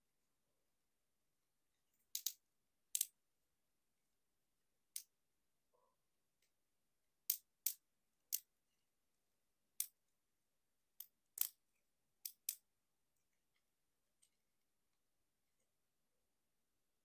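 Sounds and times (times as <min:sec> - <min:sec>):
plastic action figure clicks: 0:02.1 - 0:03.1.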